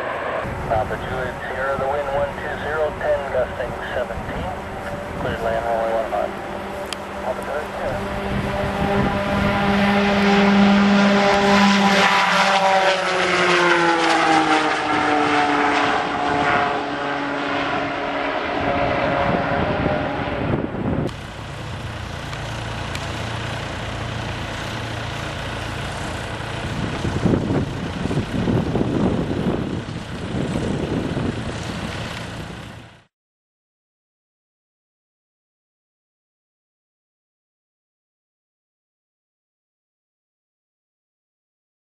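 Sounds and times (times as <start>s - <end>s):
propeller plane drone: 0.0s - 33.1s
tow tug engine hum: 0.0s - 33.1s.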